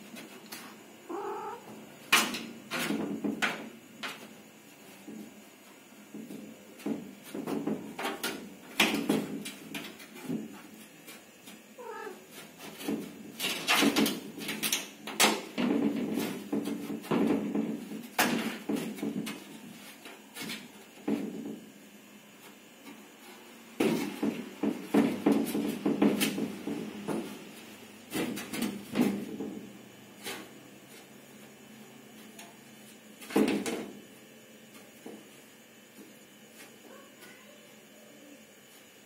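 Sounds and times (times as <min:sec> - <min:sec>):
cat meow: 0:01.1 - 0:01.7, 0:11.8 - 0:12.2.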